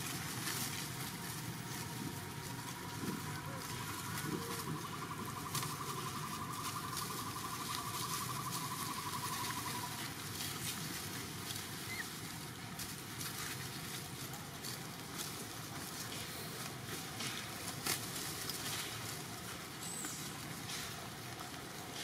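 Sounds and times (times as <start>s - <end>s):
rustling on dry leaves: 0.0s - 22.0s.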